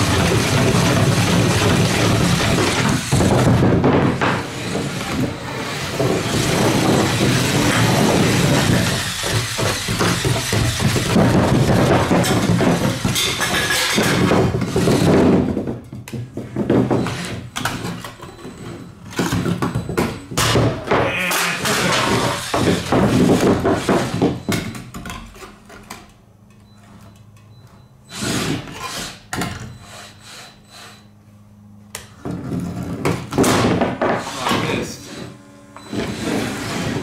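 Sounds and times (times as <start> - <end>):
robot banging on wooden boards: 0.5 - 17.1.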